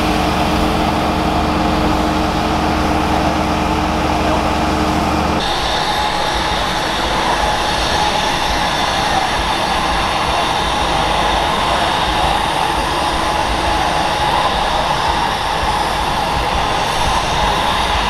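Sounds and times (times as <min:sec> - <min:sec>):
aircraft engine roar: 0:00.0 - 0:18.0.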